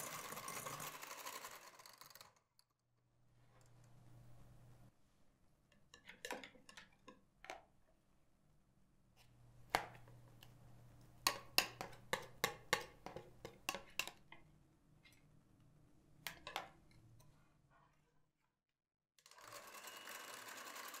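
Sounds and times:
kitchen utensils clicking and knocking: 0.0s - 2.3s, 11.3s - 14.4s.

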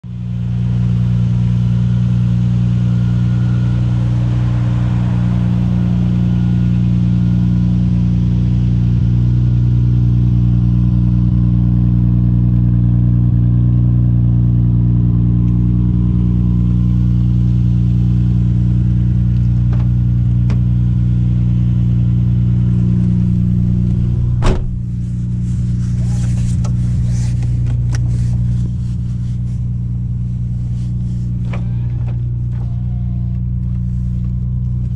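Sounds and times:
car engine idling: 0.0s - 34.9s
sharp knock: 24.4s - 24.8s.

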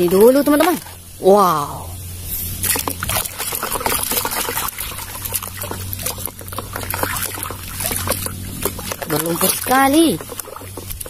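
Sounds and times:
water splashing in a basin: 0.0s - 1.1s, 2.6s - 11.0s
hands scrubbing plastic toy: 2.6s - 11.0s.

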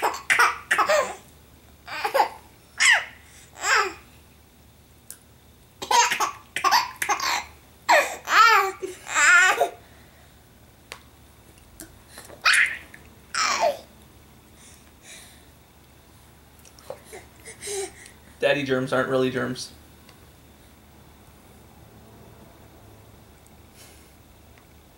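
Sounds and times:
baby laughing: 0.0s - 1.2s, 1.9s - 4.0s, 5.8s - 9.8s, 12.4s - 13.9s.

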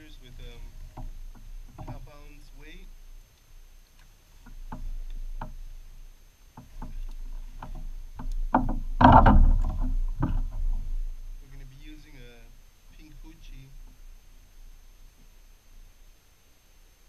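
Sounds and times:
fishing gear clicking and knocking: 0.0s - 2.4s, 4.0s - 11.2s
rough rustle: 0.0s - 17.0s.

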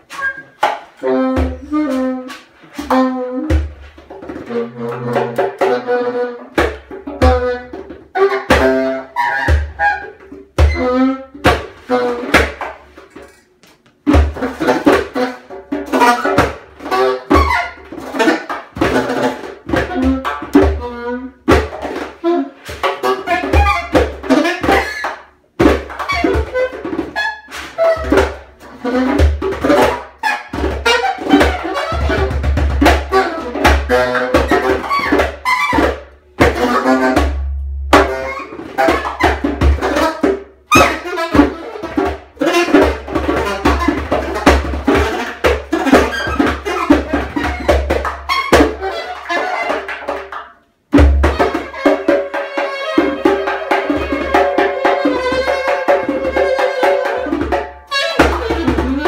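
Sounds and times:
alto saxophone phrases: 1.0s - 12.4s, 19.1s - 21.5s, 22.2s - 25.0s, 26.1s - 32.4s, 36.5s - 47.7s, 57.9s - 59.0s
hand drum strikes: 29.1s - 49.3s, 49.9s - 59.0s.

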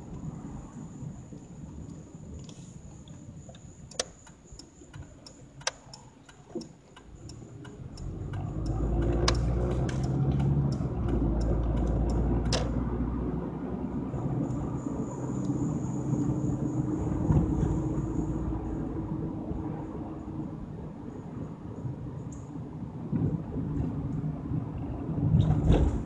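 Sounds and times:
car engine and road noise: 0.0s - 26.0s
car turn signal ticking: 1.3s - 12.8s.

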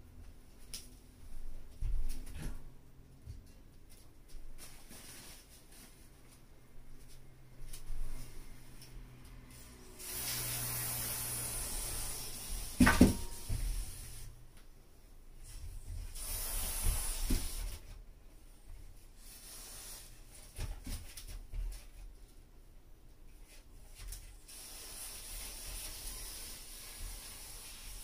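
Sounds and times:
aerosol spray can hissing: 9.9s - 14.3s, 16.1s - 17.8s, 24.5s - 28.0s.

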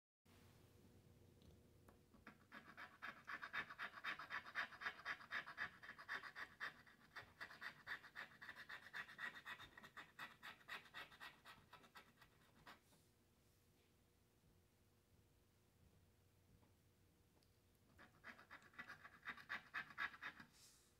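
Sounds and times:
scratching lottery ticket: 2.2s - 12.8s, 18.0s - 20.5s.

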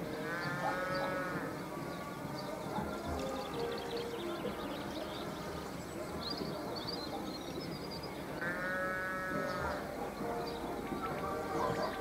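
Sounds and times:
birds chirping: 0.0s - 12.0s
bleat-like animal call: 0.1s - 1.6s, 8.4s - 9.8s.

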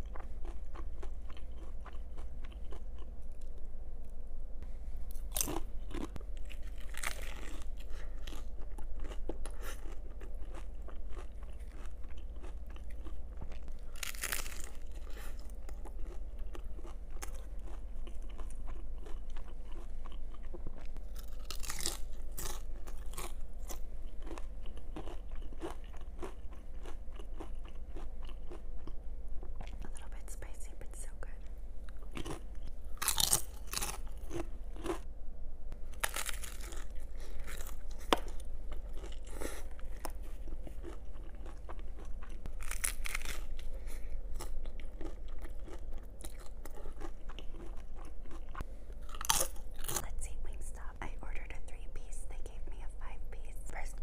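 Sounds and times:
crackly chewing: 0.0s - 4.2s, 5.0s - 30.6s, 31.8s - 35.1s, 35.7s - 51.8s
faint low hum: 0.0s - 54.0s
taco shell crunching: 5.1s - 29.8s, 31.9s - 35.0s, 35.8s - 50.1s.

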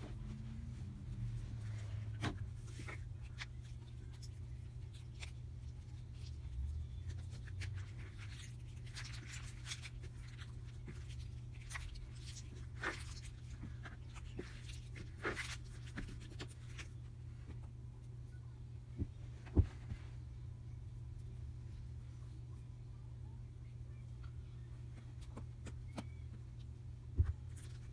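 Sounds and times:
steady low hum: 0.0s - 27.9s
sticky slime crackles: 2.7s - 16.9s.

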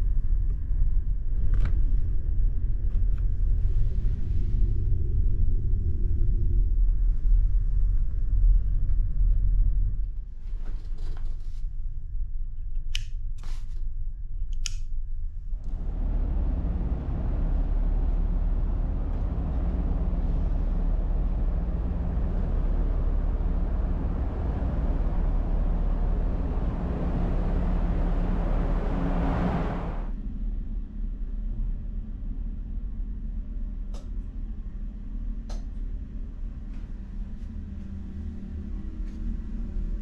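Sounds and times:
rushing wind on ferry deck: 0.0s - 11.0s, 15.5s - 32.6s
low engine hum: 0.0s - 12.6s, 15.0s - 40.0s
low ship rumble: 0.0s - 12.8s, 13.6s - 40.0s.

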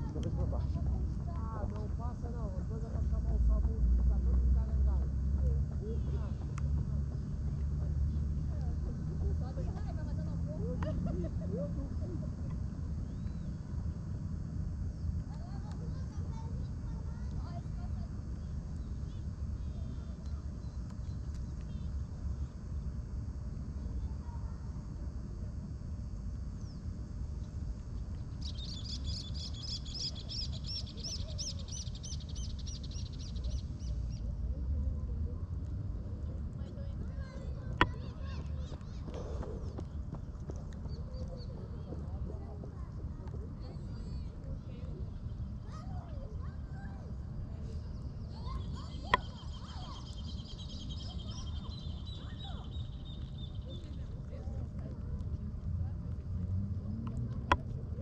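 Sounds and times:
steady low rumble: 0.0s - 58.0s
birds chirping: 28.0s - 34.3s, 47.8s - 54.1s
bird trilling: 28.4s - 34.2s.

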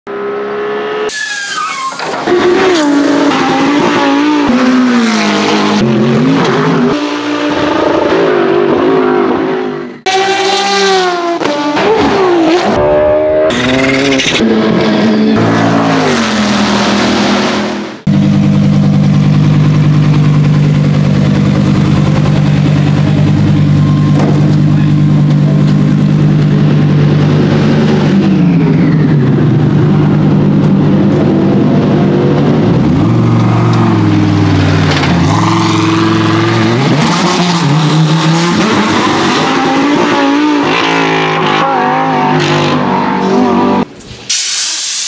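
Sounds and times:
race car engines revving: 0.1s - 44.1s
car engine idling: 18.1s - 27.4s.

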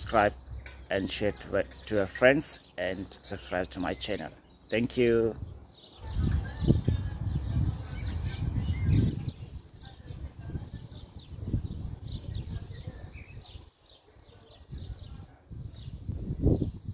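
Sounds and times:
small birds chirping: 0.0s - 16.9s.

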